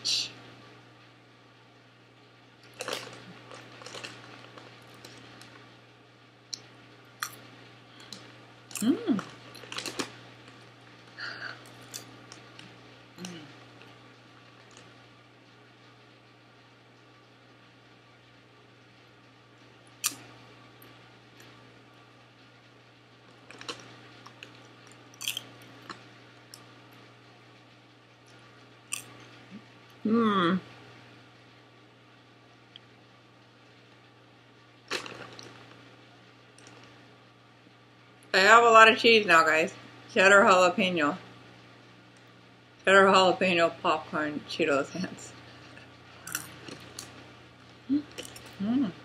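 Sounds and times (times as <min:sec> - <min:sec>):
faint steady hum: 0:00.0 - 0:49.0
popcorn crunching: 0:02.6 - 0:05.7, 0:06.5 - 0:15.1, 0:19.9 - 0:20.3, 0:23.3 - 0:26.7, 0:28.2 - 0:29.4, 0:34.8 - 0:35.8, 0:36.5 - 0:37.0, 0:45.6 - 0:48.7.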